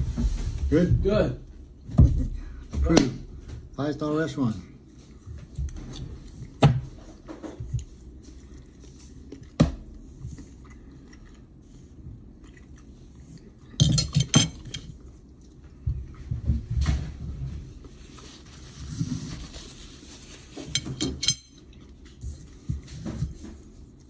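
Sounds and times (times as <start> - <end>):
chewing: 5.0 - 13.8, 14.8 - 16.2.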